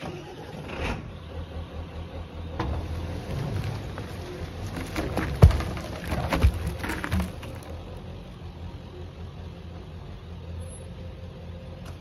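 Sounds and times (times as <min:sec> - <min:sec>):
low motor hum: 0:00.7 - 0:12.0
logs thudding onto ground: 0:04.6 - 0:07.8.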